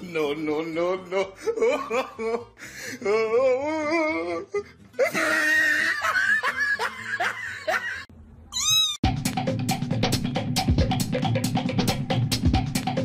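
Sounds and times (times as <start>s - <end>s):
person laughing: 0.5s - 8.1s
kitten mewing: 8.5s - 9.0s.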